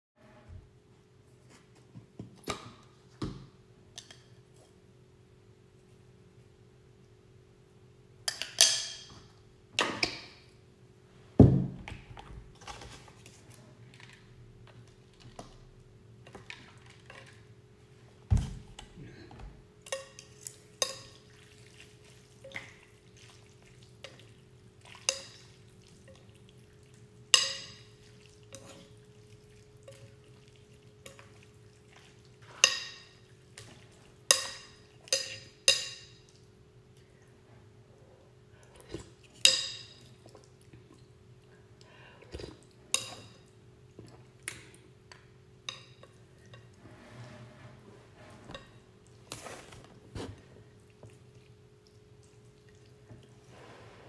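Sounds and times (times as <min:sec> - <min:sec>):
utensils clinking against ceramic bowl: 0:27.4 - 0:29.0, 0:34.3 - 0:36.3, 0:42.9 - 0:43.5.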